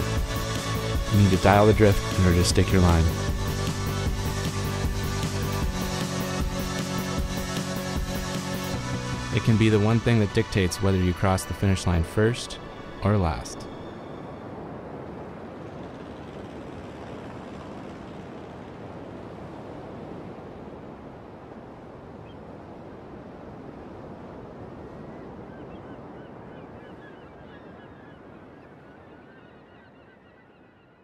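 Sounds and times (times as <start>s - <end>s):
rushing outdoor ambience: 0.0s - 25.1s
birds calling: 25.0s - 31.0s.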